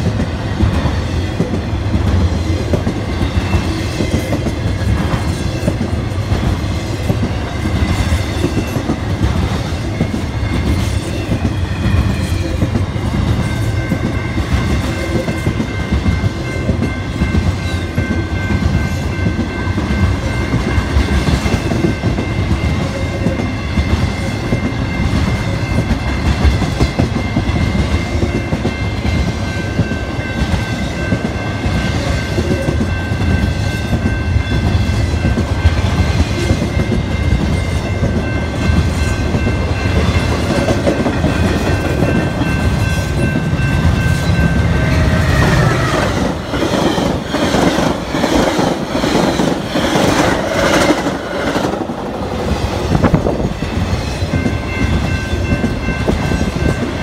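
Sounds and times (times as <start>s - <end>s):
freight train rumble: 0.0s - 57.0s
high ringing tones: 7.3s - 51.8s.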